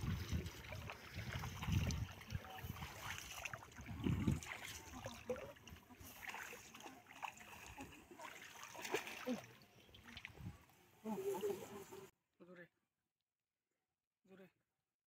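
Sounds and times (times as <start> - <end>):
footsteps splashing in muddy water: 0.0 - 10.5.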